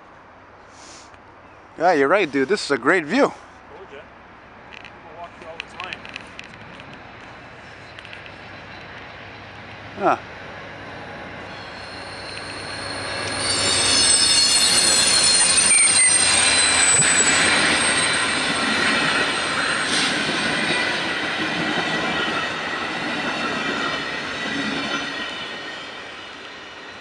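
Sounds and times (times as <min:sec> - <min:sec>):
passing train coaches rumbling: 0:02.2 - 0:27.0
train wheels squealing on rails: 0:10.8 - 0:27.0.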